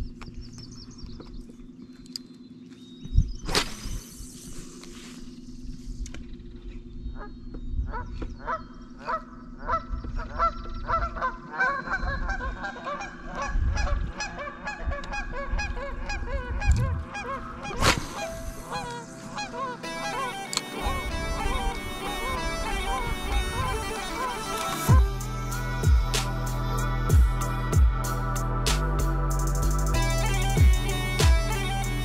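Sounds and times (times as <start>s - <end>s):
geese honking: 8.4s - 28.6s.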